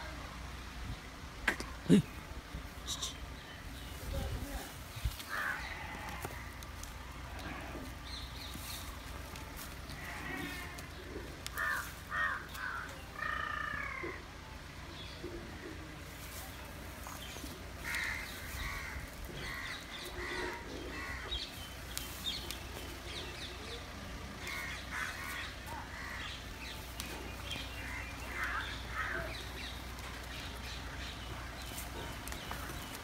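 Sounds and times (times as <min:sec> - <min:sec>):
crows cawing: 0:05.2 - 0:06.5, 0:10.0 - 0:14.2, 0:17.8 - 0:21.5, 0:24.4 - 0:26.4, 0:27.5 - 0:29.7
small birds chirping: 0:14.1 - 0:33.0.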